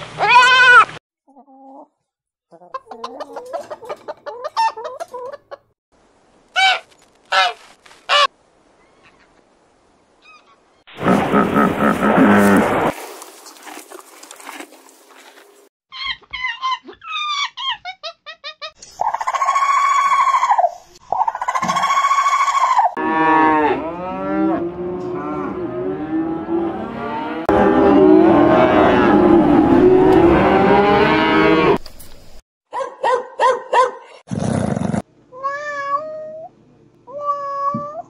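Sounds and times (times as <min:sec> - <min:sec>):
farm animals calling: 0:02.5 - 0:05.6.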